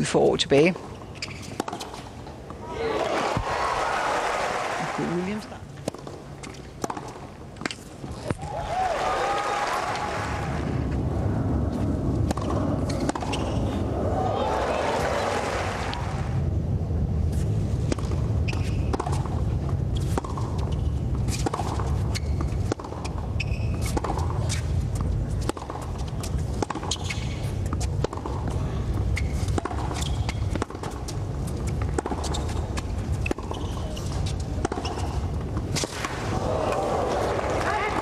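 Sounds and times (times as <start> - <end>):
tennis ball struck and bouncing: 1.2 - 2.1, 5.8 - 8.4, 12.2 - 13.6, 20.0 - 24.4, 25.0 - 28.6, 29.5 - 31.2, 34.6 - 36.3
low rumble: 10.0 - 20.0.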